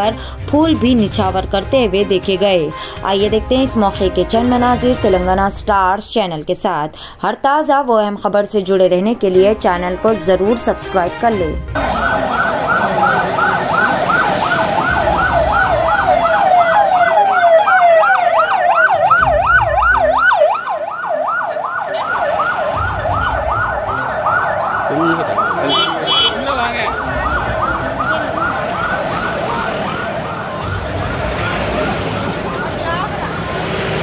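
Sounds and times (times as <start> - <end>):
emergency vehicle siren yelping: 11.8 - 34.0.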